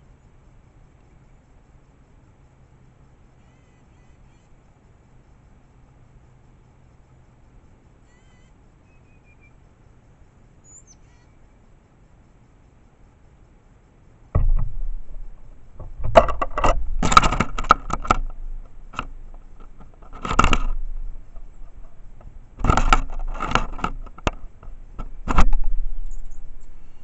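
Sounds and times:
dull thuds: 14.3 - 26.8
knocks and rattling clatters: 14.4 - 26.2.

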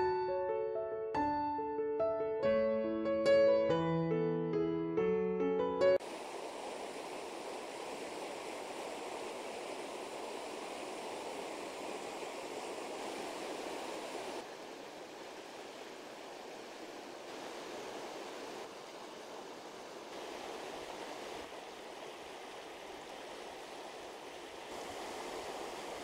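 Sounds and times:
river rushing over rocks: 6.0 - 26.0.

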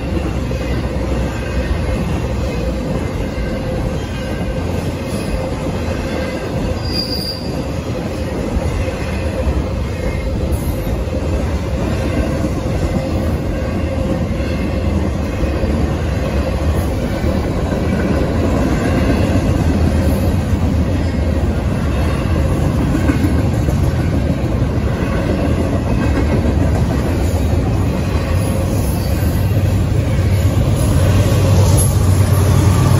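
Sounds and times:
clickety-clack over rail joints: 0.0 - 32.9
train wheels rumbling on rails: 0.0 - 32.9.

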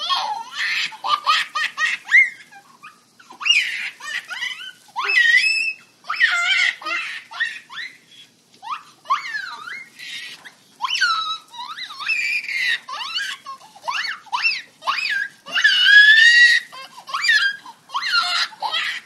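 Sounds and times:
baby laughing and squealing: 0.0 - 19.0.

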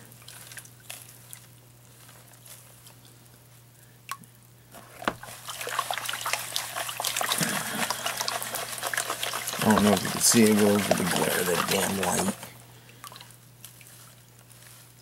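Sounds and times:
water sloshing and splashing: 0.0 - 1.6, 4.8 - 14.9
water trickling and dripping: 5.1 - 13.9.

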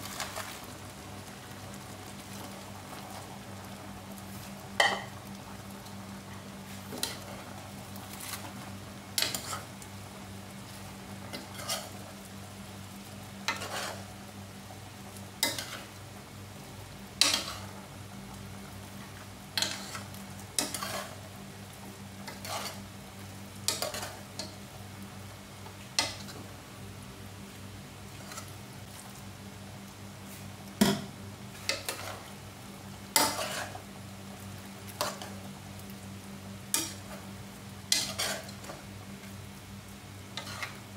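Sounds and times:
metal utensil scraping a pot: 37.9 - 38.5.

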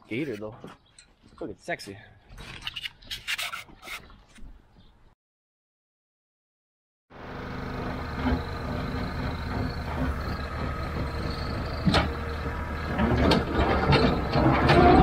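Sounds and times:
loader engine running: 7.1 - 15.0.

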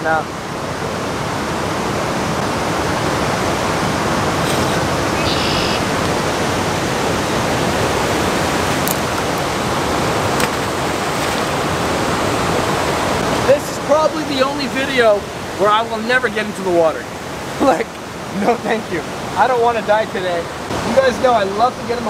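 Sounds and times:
river rushing over rocks: 0.0 - 22.0.

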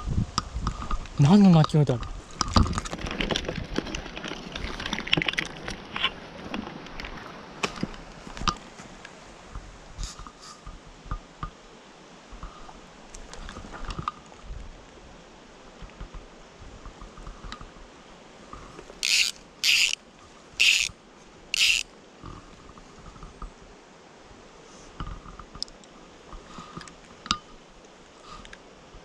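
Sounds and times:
fly reel buzzing: 19.0 - 20.0, 20.6 - 20.9, 21.5 - 21.9.

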